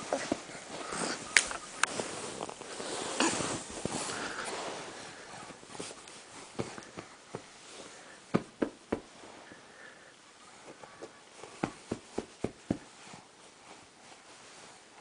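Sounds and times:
hands patting fabric cushion: 0:05.7 - 0:07.7, 0:08.3 - 0:09.2, 0:10.7 - 0:13.0.

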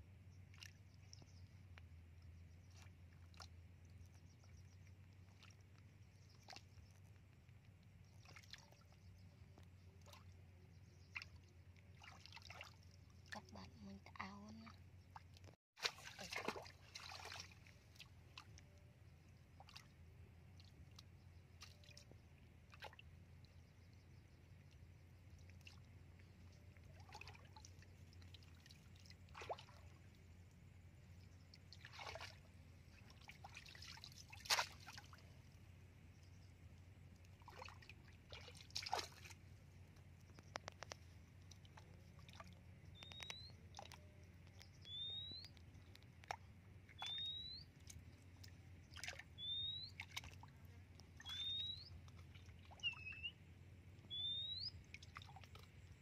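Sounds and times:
water splashing and sloshing: 0:00.1 - 0:56.0
bird short rising chirp: 0:44.8 - 0:45.5, 0:47.0 - 0:47.7, 0:49.4 - 0:50.0, 0:51.2 - 0:51.9, 0:54.1 - 0:54.8.

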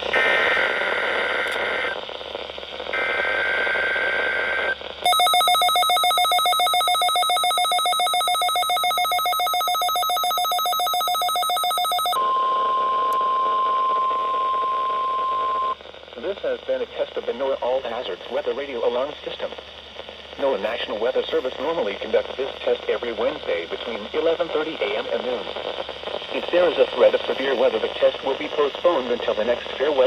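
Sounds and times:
rapid alarm beeping: 0:05.0 - 0:15.8
steady warning tone: 0:05.1 - 0:15.8.

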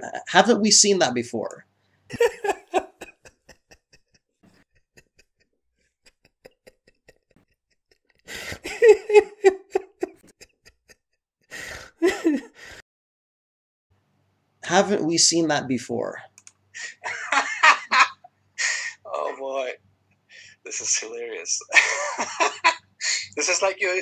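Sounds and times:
man laughing: 0:02.1 - 0:05.3, 0:06.1 - 0:07.6, 0:08.5 - 0:10.9, 0:12.0 - 0:12.6, 0:16.8 - 0:19.4, 0:21.6 - 0:23.4.

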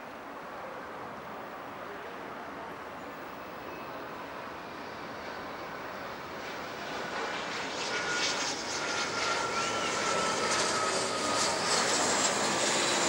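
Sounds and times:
jet engines roaring: 0:05.5 - 0:13.0
thin engine whine: 0:06.6 - 0:13.0.

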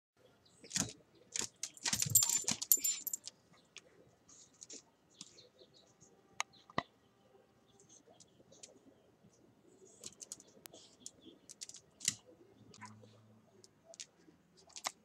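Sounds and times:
collar tags jingling: 0:01.7 - 0:03.2.

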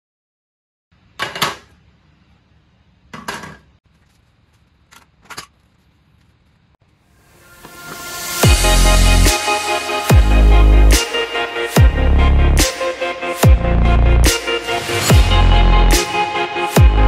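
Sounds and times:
electronic music: 0:07.2 - 0:17.0.

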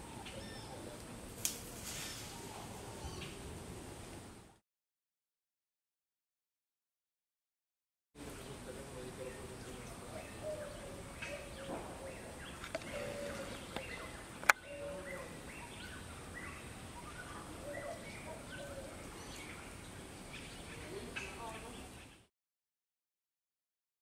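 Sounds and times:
bird chirps and calls: 0:00.0 - 0:00.9, 0:09.2 - 0:22.3
faint high hiss: 0:00.0 - 0:04.6.

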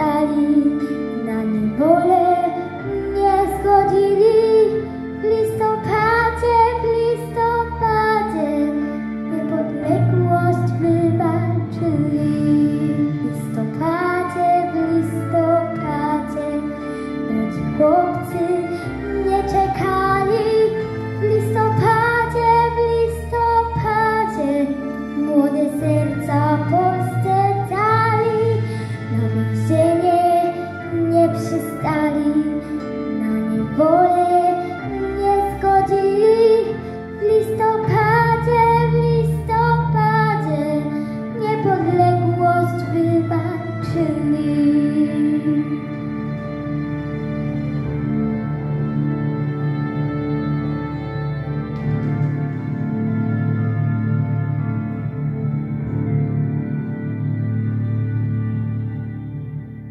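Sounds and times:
instrumental backing track: 0:00.0 - 0:59.9
girl singing into a microphone: 0:17.3 - 0:45.7.

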